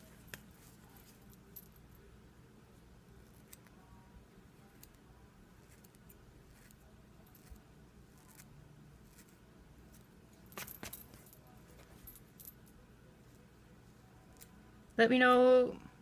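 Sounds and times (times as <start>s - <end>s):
small scissors snipping hair: 5.6s - 8.5s.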